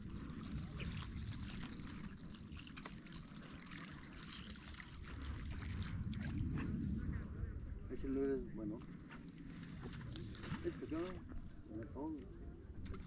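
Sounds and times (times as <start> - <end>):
water trickling: 0.0 - 7.0
light ticks of water: 0.0 - 7.1, 8.8 - 13.0
low steady rumble: 0.0 - 13.0.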